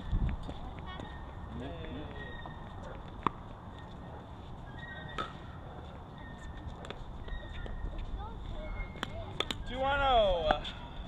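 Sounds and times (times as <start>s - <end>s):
low wind rumble: 0.0s - 1.8s.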